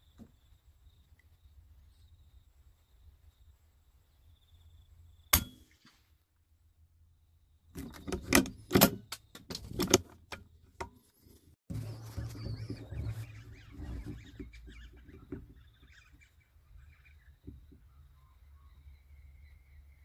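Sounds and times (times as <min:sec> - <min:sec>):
sharp metallic clicks and knocks: 0:07.8 - 0:11.0.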